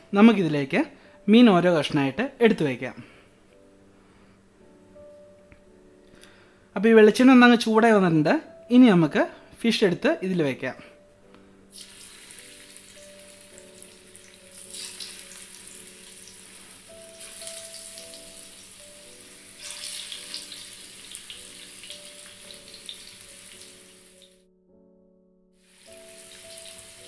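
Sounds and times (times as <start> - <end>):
soft background music: 0.0 - 27.0
fish sizzling in hot oil: 11.7 - 24.4, 25.6 - 27.0.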